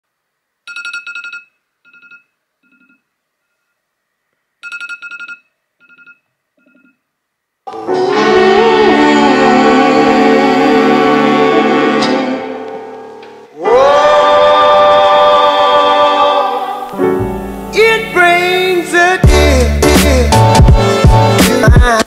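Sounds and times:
phone alarm ringing: 0.7 - 3.8, 4.6 - 7.0
loud background music: 19.0 - 22.0.

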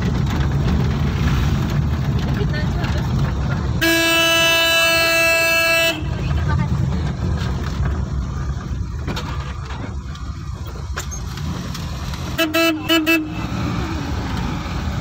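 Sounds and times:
engine and road rumble: 0.0 - 15.0
car horn short toots: 3.8 - 6.3, 12.3 - 13.5.

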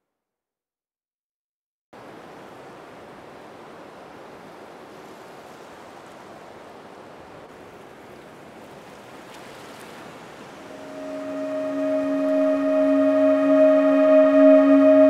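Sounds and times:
surf washing on rocks: 2.0 - 11.6
steady multi-pitched tone: 10.8 - 15.0.

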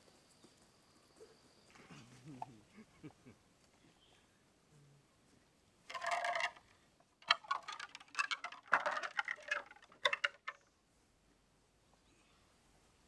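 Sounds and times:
bamboo scraping: 5.9 - 10.6
bamboo rails knocking and clattering: 5.9 - 10.7.

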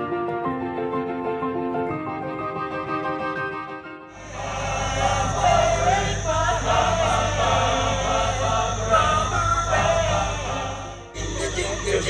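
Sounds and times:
men's choir singing: 4.2 - 12.0
steady low hum: 4.2 - 12.0.

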